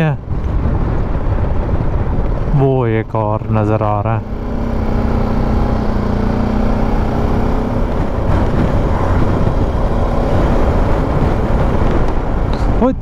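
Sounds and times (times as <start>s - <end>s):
wind rumble on microphone: 0.0s - 13.0s
motorcycle engine running: 3.9s - 12.7s.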